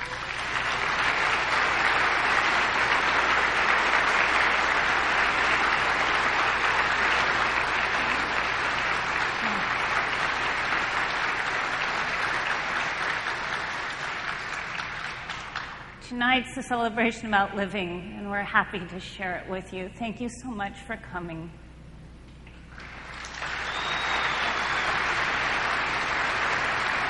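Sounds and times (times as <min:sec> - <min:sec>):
audience applauding: 0:00.0 - 0:16.0, 0:22.7 - 0:27.0.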